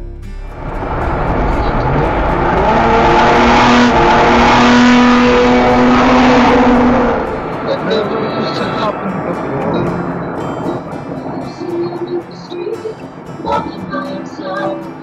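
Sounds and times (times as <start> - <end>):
car driving at speed: 0.5 - 12.3.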